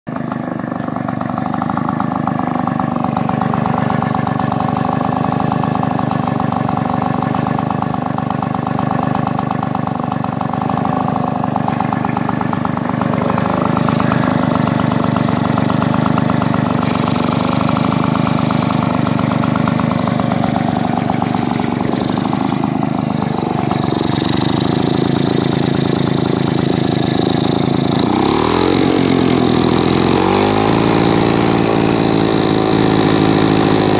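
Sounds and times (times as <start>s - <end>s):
small two-stroke engine running: 0.1s - 33.9s.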